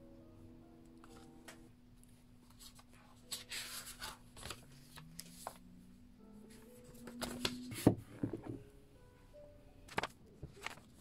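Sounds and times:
paper pages rustling: 0:02.4 - 0:05.7, 0:06.5 - 0:08.0, 0:09.9 - 0:11.0.

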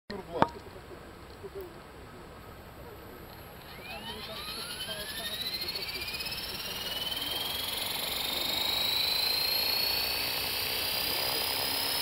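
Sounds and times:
rc helicopter motor whine: 0:02.7 - 0:12.0.

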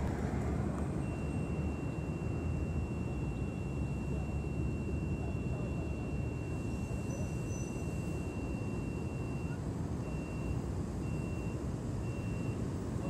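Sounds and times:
steady low rumble: 0:00.0 - 0:06.8
high-pitched beeping tone: 0:01.0 - 0:12.6.

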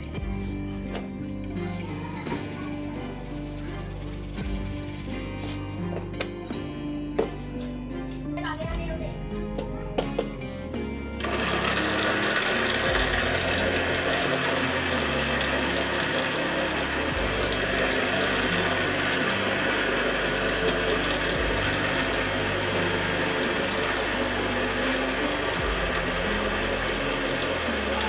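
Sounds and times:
blender running: 0:11.2 - 0:28.0.

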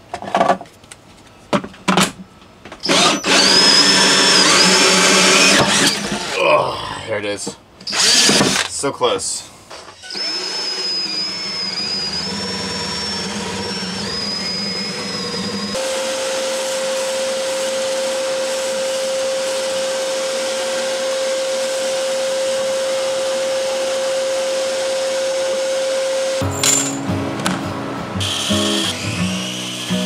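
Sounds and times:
cordless drill boring into wood: 0:02.8 - 0:06.4, 0:07.8 - 0:08.7, 0:10.0 - 0:26.4, 0:28.2 - 0:30.0
shop vacuum running: 0:02.8 - 0:06.5, 0:10.1 - 0:30.0.

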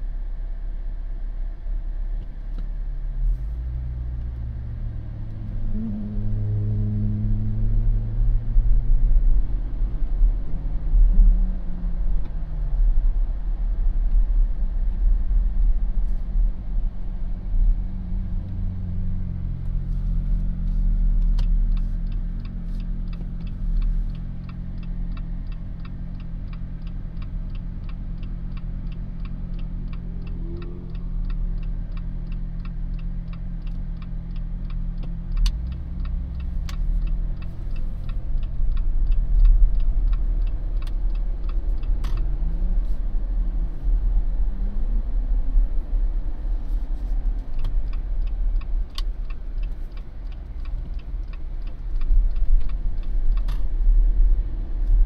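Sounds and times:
car engine and road rumble: 0:00.0 - 0:55.0
turn-signal indicator clicking: 0:21.2 - 0:42.4, 0:47.2 - 0:53.7.

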